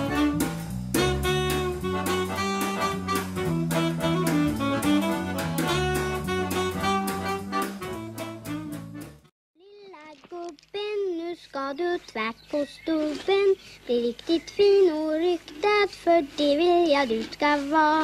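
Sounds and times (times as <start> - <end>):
instrumental music with steady beat: 0.0 - 9.3.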